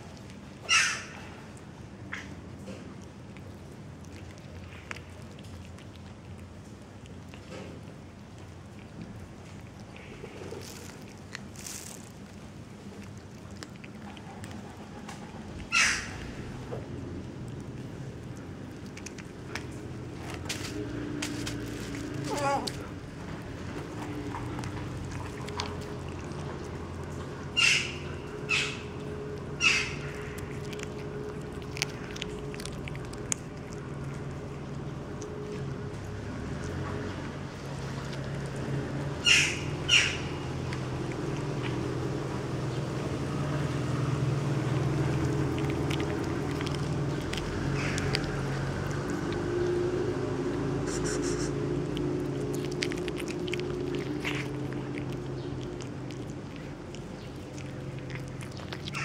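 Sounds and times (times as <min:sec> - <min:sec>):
cat chewing clicks: 0:00.0 - 0:39.1, 0:39.8 - 0:59.0
low background hum: 0:00.0 - 0:59.0
harsh bird calls: 0:39.2 - 0:40.4.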